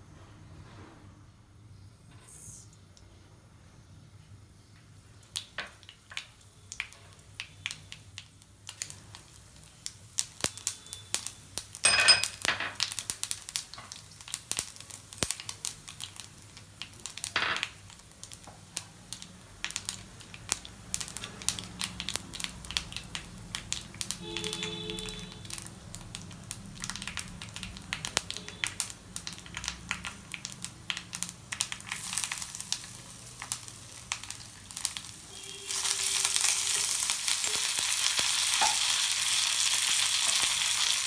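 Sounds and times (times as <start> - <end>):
seeds popping in hot oil: 4.7 - 41.0.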